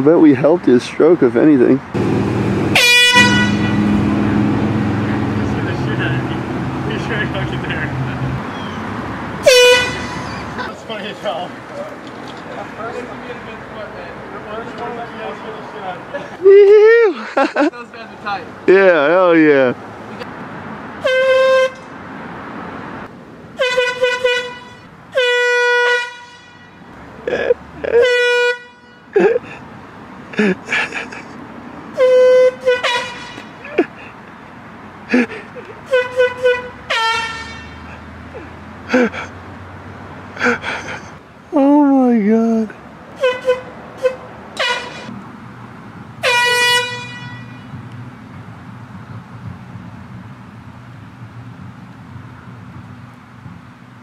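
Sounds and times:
air horn blasts: 2.7s - 4.1s, 9.4s - 10.4s, 21.0s - 21.9s, 23.6s - 26.9s, 28.0s - 29.1s, 31.9s - 33.6s, 35.9s - 37.9s, 43.2s - 45.1s, 46.2s - 47.8s.

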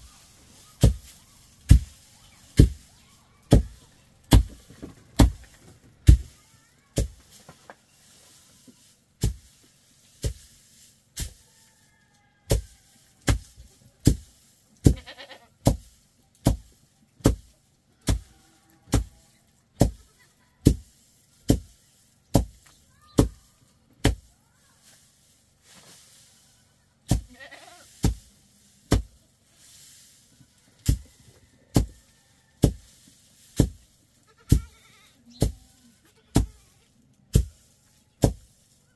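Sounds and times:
faint bleating: 14.9s - 15.5s, 27.3s - 27.9s, 34.3s - 35.2s.

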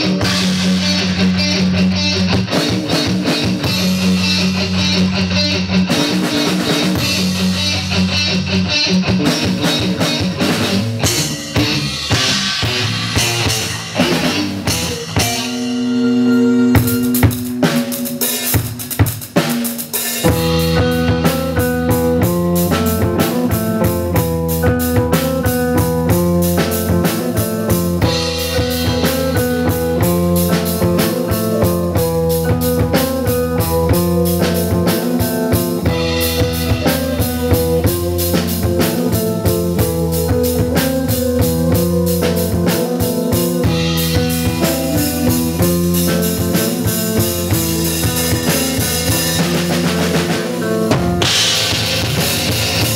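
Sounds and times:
drum kit: 0.0s - 52.9s
electric bass: 0.0s - 52.9s
electric guitar: 0.0s - 52.9s
keyboards: 0.0s - 52.9s
cymbals: 10.9s - 23.5s.

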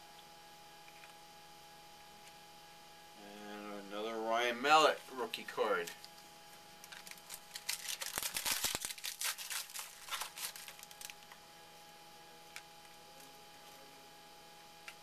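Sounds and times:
card pack wrapper torn and crinkled: 6.8s - 11.4s.

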